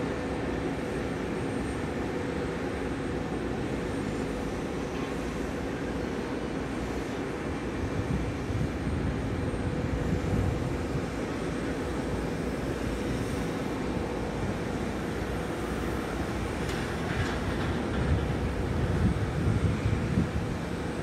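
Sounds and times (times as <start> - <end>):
distant jet engines taxiing: 0.0 - 21.0
wind on microphone: 7.8 - 11.2, 17.0 - 21.0.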